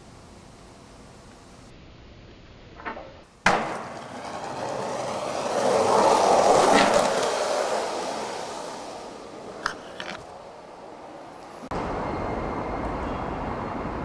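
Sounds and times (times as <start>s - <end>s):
skateboard clacking: 2.8s - 10.6s
skateboard wheels rolling on pavement: 2.8s - 14.0s.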